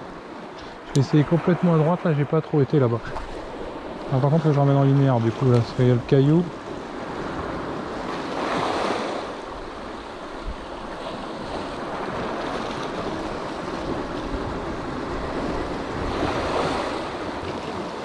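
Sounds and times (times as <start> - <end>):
sea waves washing on shore: 0.0 - 18.0.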